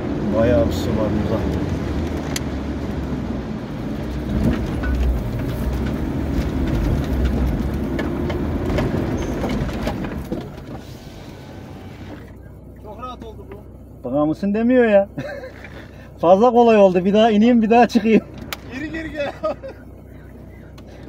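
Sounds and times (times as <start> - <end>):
engine pulling hard: 0.0 - 21.0
body and suspension rattles: 3.9 - 13.7, 15.2 - 21.0.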